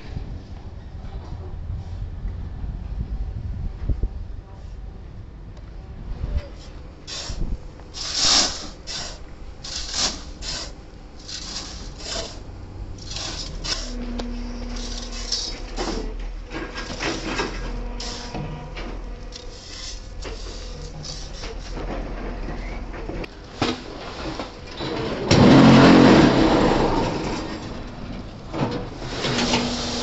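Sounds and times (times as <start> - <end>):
steady low hum: 0.0 - 30.0
shovel scraping crushed stone: 7.0 - 12.4, 13.0 - 22.7.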